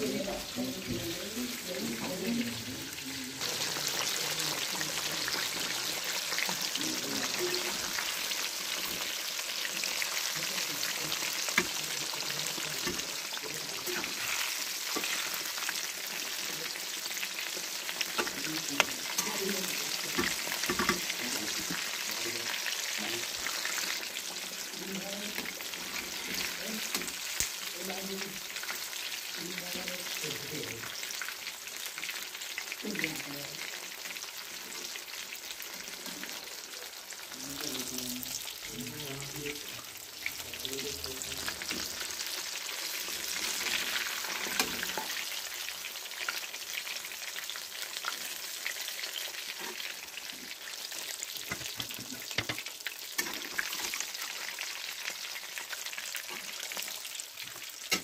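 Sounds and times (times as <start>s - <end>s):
chicken deep-frying in oil: 0.0s - 58.0s.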